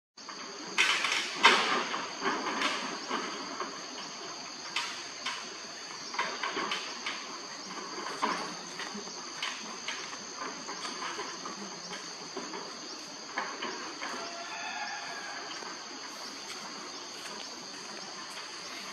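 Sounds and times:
insects droning: 0.2s - 18.9s.

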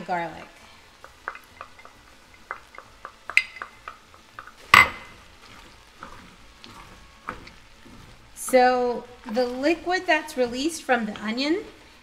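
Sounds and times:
wooden spoon stirring in pot: 0.0s - 12.0s.

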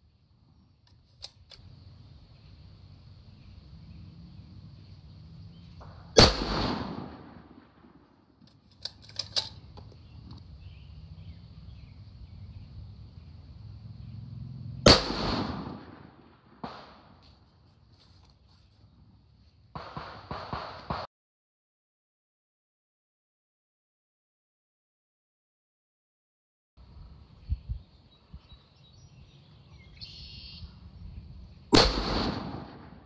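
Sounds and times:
rifle shots: 5.8s - 8.2s, 14.8s - 17.2s, 19.7s - 21.1s, 31.7s - 33.0s
rifle bolt clicking: 8.5s - 9.7s.

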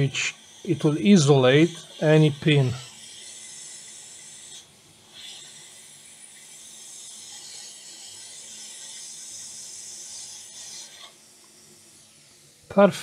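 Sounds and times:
hot air blower hissing: 0.0s - 3.0s.

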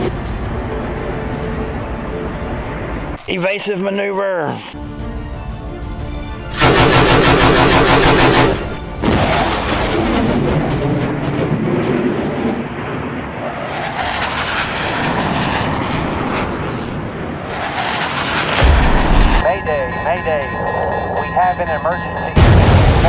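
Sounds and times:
background music: 0.0s - 9.3s, 19.4s - 23.0s
machine-gun fire: 6.6s - 8.8s
jet engine rushing: 8.3s - 23.0s.

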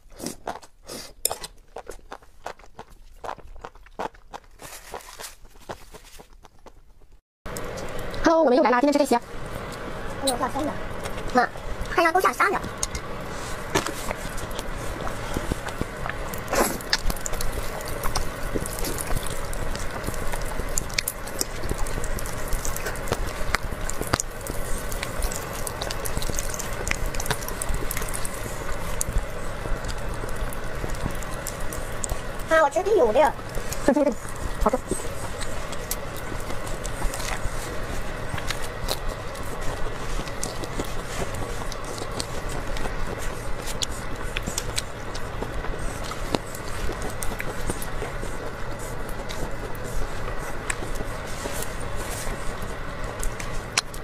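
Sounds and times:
chewing with sharp clicks: 0.2s - 5.8s, 13.8s - 32.4s, 33.4s - 54.0s
wet slurping and squishing: 11.3s - 54.0s.

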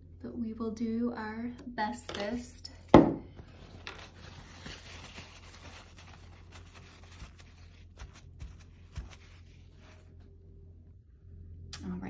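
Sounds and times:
steady low hum: 0.0s - 12.0s
brush scratching on paper: 4.5s - 10.1s.

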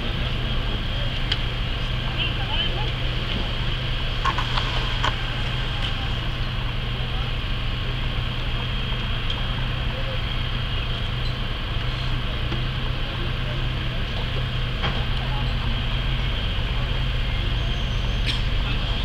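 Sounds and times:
fire engine idling hum: 0.0s - 19.0s
hose water and steam hissing: 4.2s - 6.5s.

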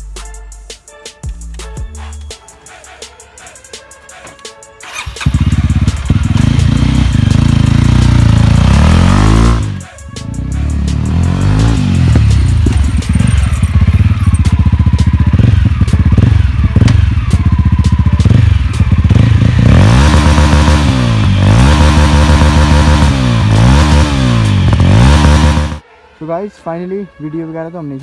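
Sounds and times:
motorcycle engine revving: 4.8s - 25.8s
motorcycle exhaust crackling pops: 16.8s - 17.1s.

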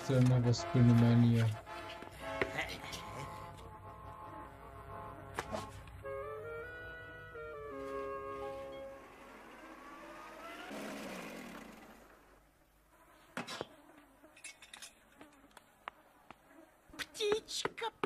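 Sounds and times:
cartoon car engine buzzing: 6.0s - 12.7s.

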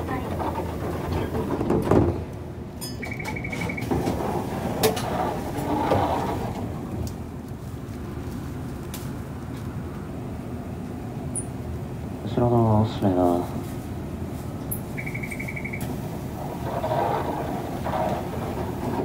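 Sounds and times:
tram low hum: 0.0s - 19.0s
door buzzer beeping: 3.0s - 4.0s, 15.0s - 15.9s.

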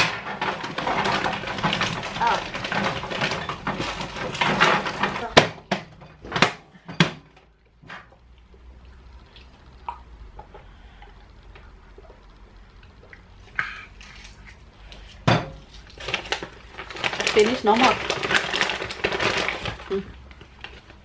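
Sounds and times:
kitchen items clinking and knocking: 0.0s - 8.2s, 15.2s - 20.3s.

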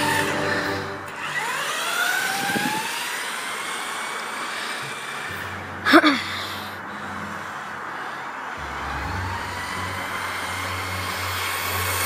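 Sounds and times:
electric motor whine: 0.0s - 5.7s, 8.5s - 12.0s
outdoor noise: 0.0s - 12.0s.

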